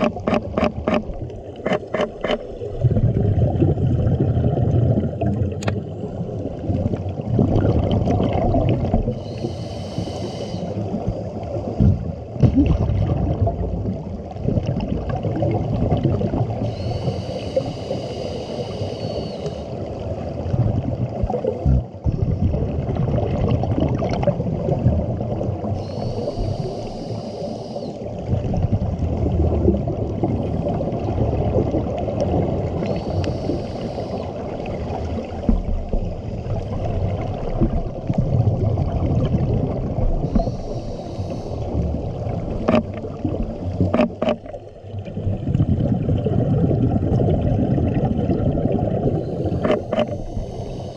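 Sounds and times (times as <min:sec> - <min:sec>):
exhaled bubbles rumbling: 0:00.0 - 0:09.6, 0:10.7 - 0:18.1, 0:19.2 - 0:50.9
regulator hissing inhale: 0:09.2 - 0:10.9, 0:16.6 - 0:19.9, 0:25.8 - 0:28.1, 0:32.8 - 0:34.6, 0:40.2 - 0:41.8, 0:49.1 - 0:50.9.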